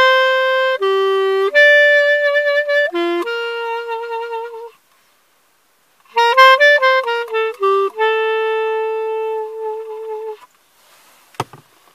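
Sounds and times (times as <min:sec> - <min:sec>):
solo clarinet playing: 0:00.0 - 0:04.8, 0:06.1 - 0:10.5.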